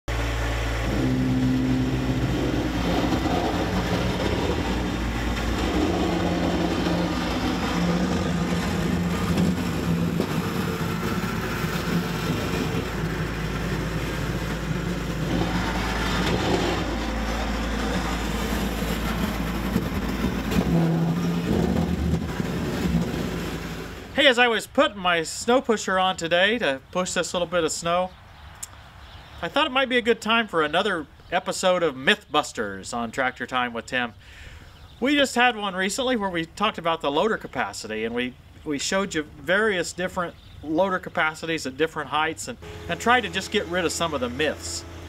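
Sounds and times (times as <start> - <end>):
tractor engine running: 0.1 - 24.5, 42.6 - 45.0.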